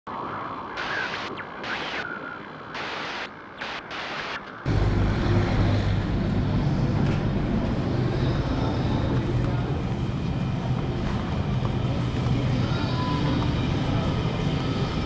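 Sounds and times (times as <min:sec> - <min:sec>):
low rumble and hum: 0:00.1 - 0:15.0.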